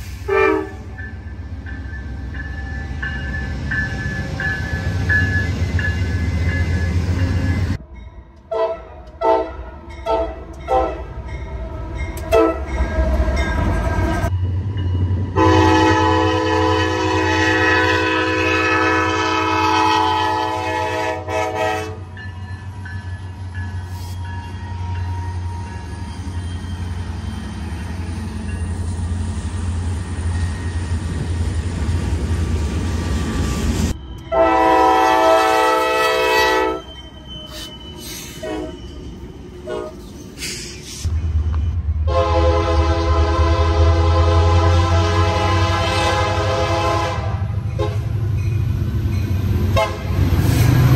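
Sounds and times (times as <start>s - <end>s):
passing train rumble: 0.0s - 50.9s
locomotive air horn blasts: 0.2s - 0.9s, 8.5s - 11.1s, 12.3s - 12.7s, 15.4s - 22.2s, 34.3s - 36.9s, 38.4s - 38.8s, 39.6s - 40.0s, 42.1s - 48.1s, 49.7s - 50.2s.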